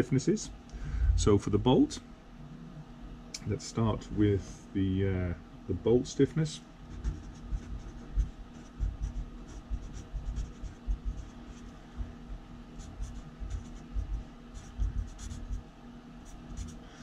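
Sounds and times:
marker writing on paper: 6.9s - 11.8s, 12.8s - 15.6s, 16.3s - 16.8s.

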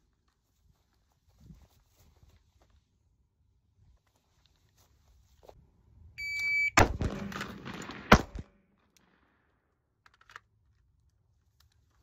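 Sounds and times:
shot timer beep: 6.2s - 6.8s
carbine shot: 6.7s - 9.2s
loud pistol shot: 6.8s - 8.6s.

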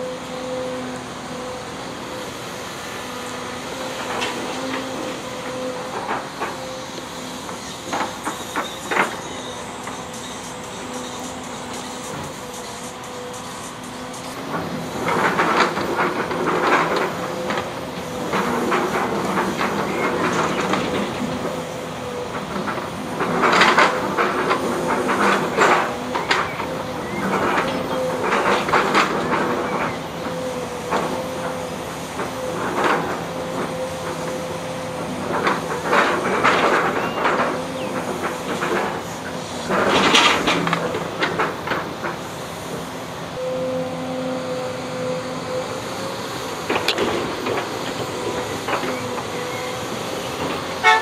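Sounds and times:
excavator engine humming: 0.0s - 51.0s
metal clanks and knocks: 22.3s - 42.2s.

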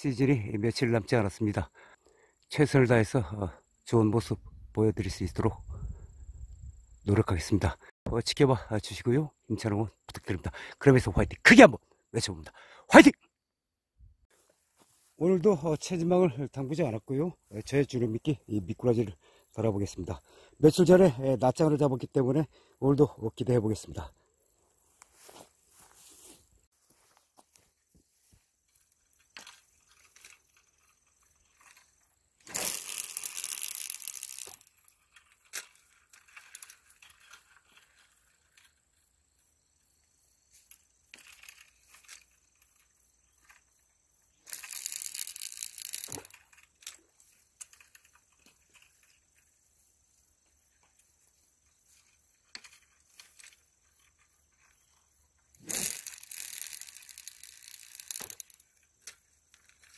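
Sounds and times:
rustling crinkling noise: 14.3s - 15.3s, 24.9s - 38.8s
faint clicks and ticks: 32.5s - 38.8s, 40.7s - 49.5s, 51.9s - 59.9s.

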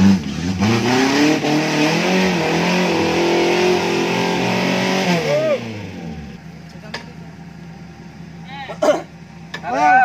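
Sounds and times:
off-road vehicle engine revving: 0.0s - 7.1s.

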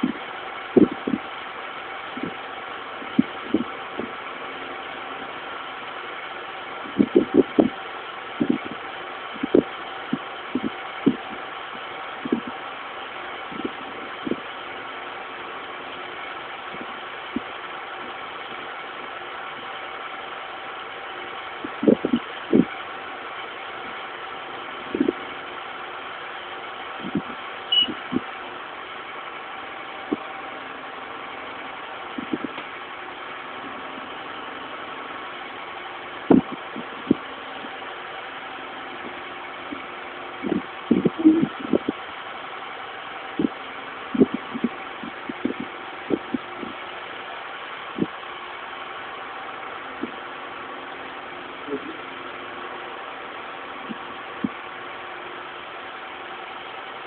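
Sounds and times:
motor hum: 0.0s - 57.0s.

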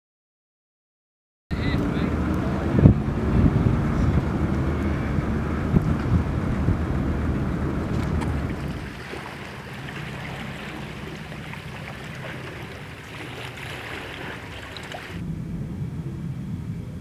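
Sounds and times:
small waves lapping on rocks: 7.9s - 15.2s.

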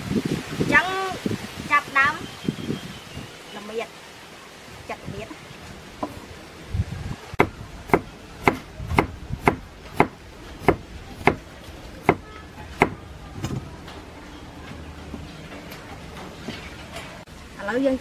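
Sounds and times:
cleaver chopping on wooden block: 7.4s - 11.4s, 12.8s - 13.0s.

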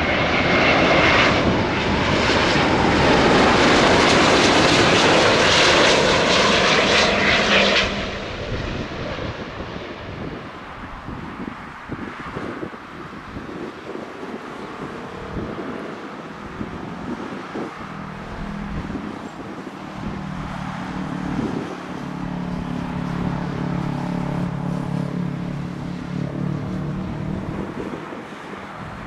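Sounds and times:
wind buffeting microphone: 0.0s - 29.0s
low engine rumble: 13.9s - 29.0s.

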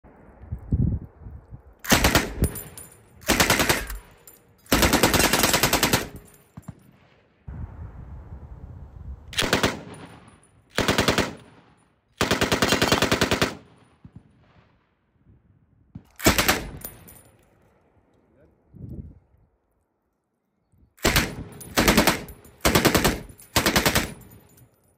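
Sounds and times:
machine gun firing bursts: 1.9s - 2.5s, 3.2s - 4.0s, 4.7s - 6.8s, 9.4s - 10.2s, 10.8s - 11.6s, 12.2s - 13.8s, 16.2s - 16.8s, 21.0s - 24.4s.

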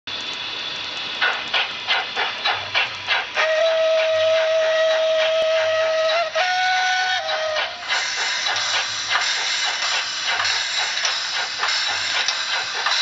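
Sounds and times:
steam locomotive chuffing: 0.1s - 13.0s
steam hiss: 0.2s - 13.0s
locomotive whistle blast: 3.4s - 8.2s.

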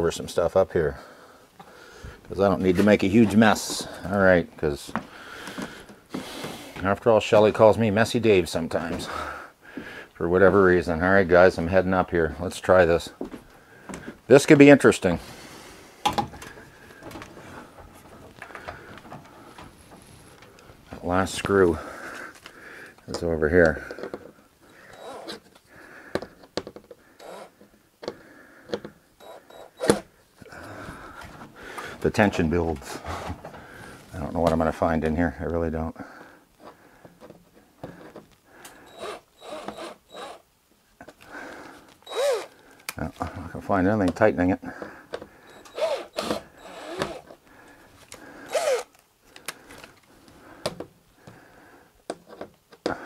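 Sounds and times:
cordless drill: 24.9s - 25.5s, 27.2s - 27.6s, 29.2s - 30.0s, 38.8s - 40.4s, 42.0s - 42.6s, 45.5s - 47.4s, 48.4s - 48.9s
clicks and knocks of handling: 52.0s - 53.0s.

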